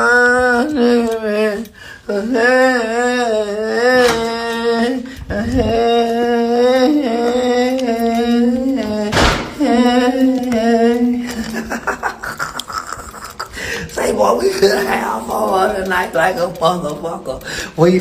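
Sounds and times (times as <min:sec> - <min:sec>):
man humming a tune: 0:00.0 - 0:18.0.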